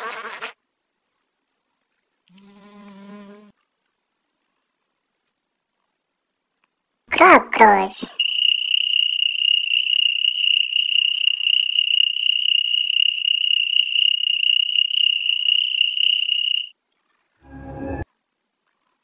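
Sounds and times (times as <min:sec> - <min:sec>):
high-pitched insect trill: 0:08.1 - 0:16.7.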